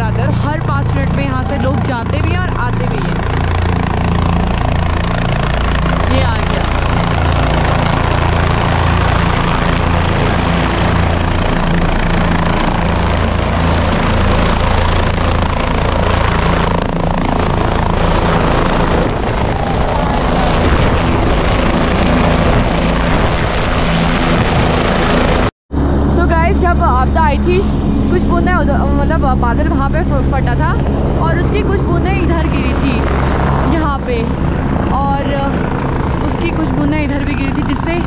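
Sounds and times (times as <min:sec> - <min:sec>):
helicopter rotor and engine: 0:00.0 - 0:38.0.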